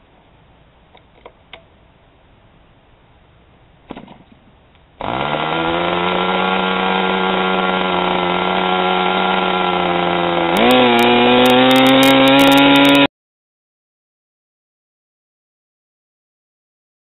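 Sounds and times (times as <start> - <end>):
model airplane engine running: 5.0 - 13.1.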